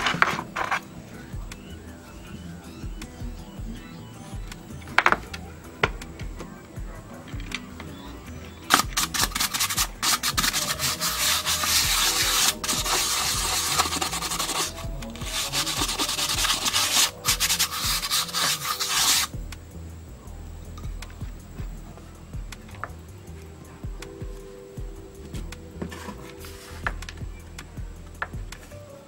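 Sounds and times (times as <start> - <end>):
toothbrush scrubbing loudspeaker cone: 8.6 - 19.4.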